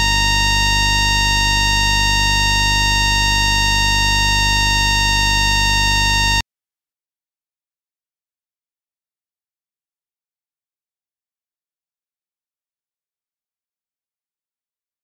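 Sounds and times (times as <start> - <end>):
electronic whine of fixed tones: 0.0 - 6.4
low hum: 0.0 - 6.4.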